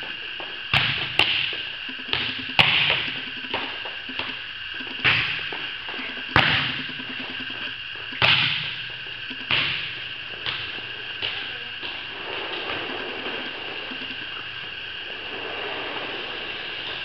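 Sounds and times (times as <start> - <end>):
steady hum: 0.0 - 17.0
slaps on volleyball: 0.7 - 1.5, 8.2 - 8.8, 9.4 - 11.4.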